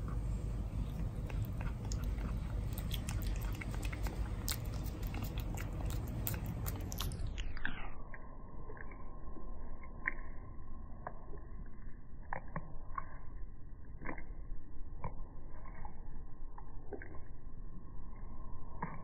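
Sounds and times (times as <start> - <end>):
cat licking wet smacks: 0.0 - 7.2.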